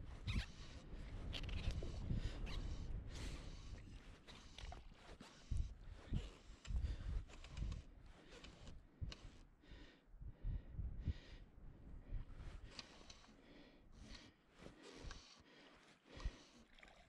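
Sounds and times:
wind buffeting microphone: 0.0 - 9.4, 10.1 - 12.8.

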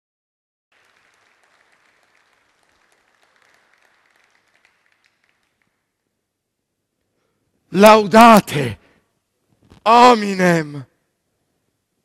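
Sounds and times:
audience applause: 0.7 - 5.9.

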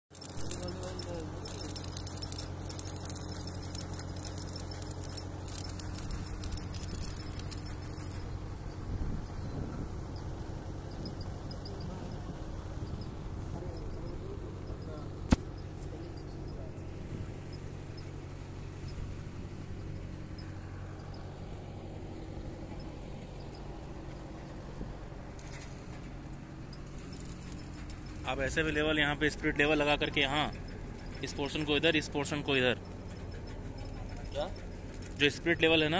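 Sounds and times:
welding arc crackling: 0.1 - 8.3
steady low hum: 0.2 - 35.7.

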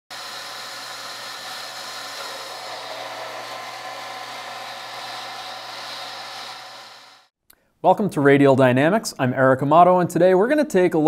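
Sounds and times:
pump humming and hissing: 0.1 - 7.3.

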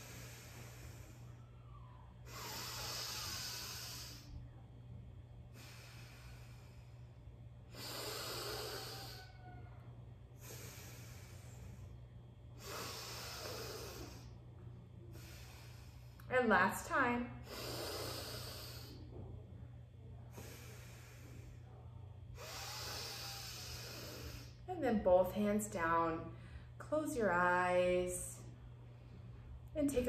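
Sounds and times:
faint low hum: 0.0 - 30.0
woman breathing through nostril: 12.6 - 14.3.

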